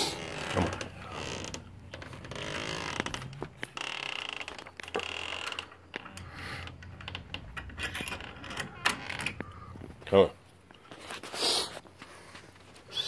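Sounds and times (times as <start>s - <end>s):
screen door rattling and clicking: 0.0s - 9.8s
short high door creaks: 0.0s - 10.0s.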